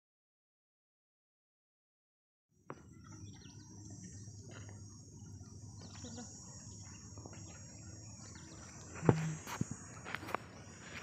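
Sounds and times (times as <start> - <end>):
bird chirps: 2.7 - 10.9
high insect buzz: 2.7 - 11.0.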